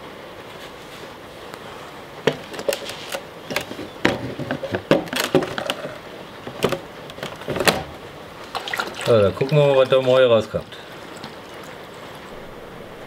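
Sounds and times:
metal parts knocking in plastic tub: 3.5 - 8.0.

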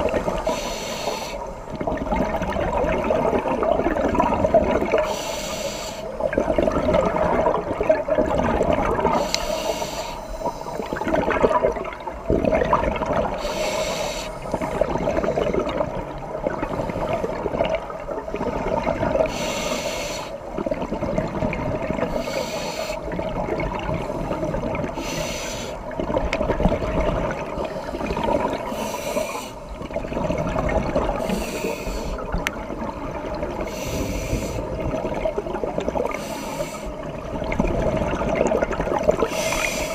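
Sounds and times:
murky underwater rumble: 0.0 - 39.9
regulator breathing bubbles hiss: 0.2 - 1.6, 4.9 - 6.2, 9.1 - 11.0, 13.3 - 14.9, 19.2 - 20.4, 22.1 - 23.2, 24.1 - 25.9, 27.8 - 29.7, 31.2 - 32.3, 33.6 - 34.8, 36.0 - 37.1, 39.2 - 39.9.

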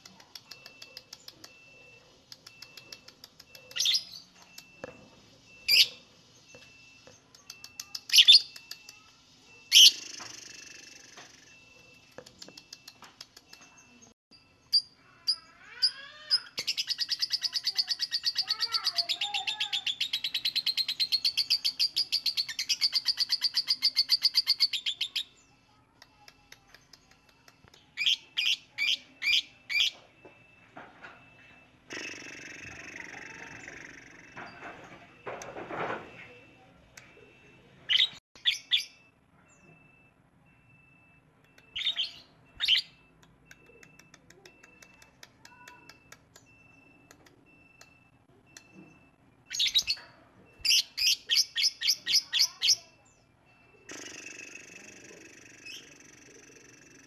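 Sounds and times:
lovebird chattering trill: 14.7 - 25.3, 41.6 - 43.0, 50.6 - 52.9.

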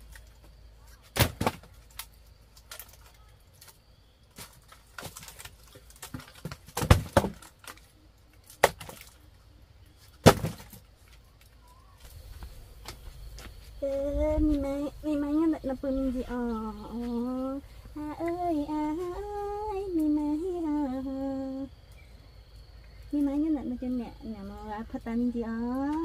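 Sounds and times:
sticks cracking and knocking: 1.0 - 9.2.

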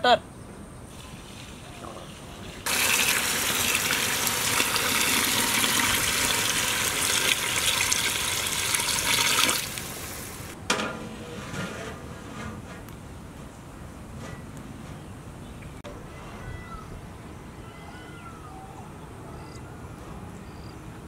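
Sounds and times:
water pouring into metal pot: 2.7 - 10.6
metal clank: 10.6 - 12.8.

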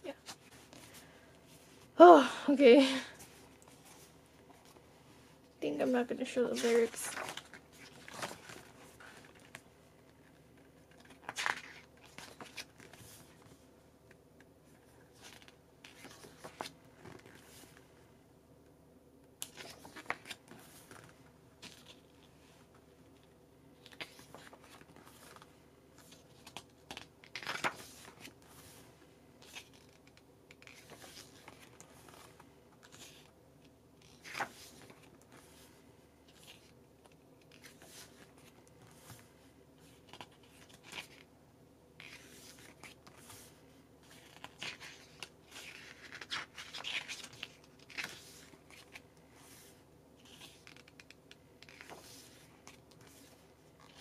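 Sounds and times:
photobook pages turning: 6.5 - 9.6, 10.2 - 13.6, 14.8 - 17.8, 19.4 - 22.8, 23.8 - 28.8, 29.4 - 33.4, 34.0 - 41.3, 42.0 - 54.0.

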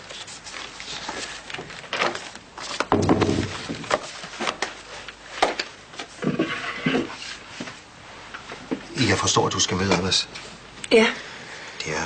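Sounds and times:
wooden chair and desk knocks: 2.9 - 3.9.

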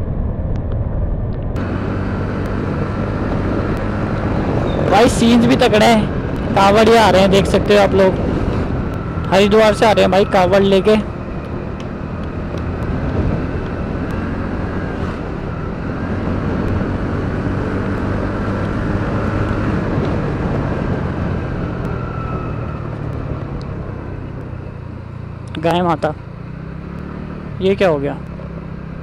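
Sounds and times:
road and wind noise: 0.0 - 29.0
scooter engine cruising: 0.2 - 29.0.

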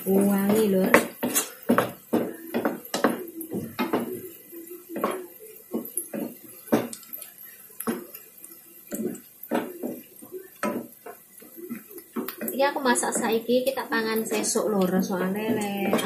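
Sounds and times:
shallots frying in oil: 0.0 - 16.0
wooden spatula scraping a wok: 0.1 - 3.2.

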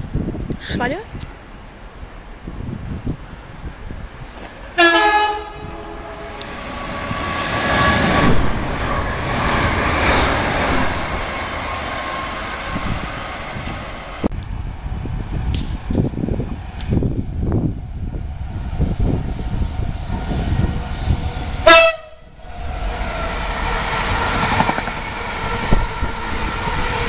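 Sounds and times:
train wheels on rails: 2.1 - 27.0
train horn blast: 4.8 - 7.1, 21.6 - 22.4
train motors whining: 22.3 - 27.0.

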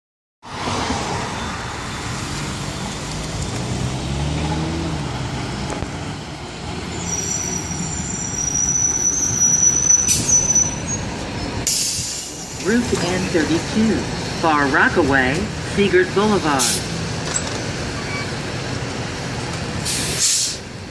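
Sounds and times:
bus engine and tyre noise: 0.4 - 20.9
high brake squeal: 1.3 - 3.2, 6.8 - 12.6, 18.0 - 18.3.

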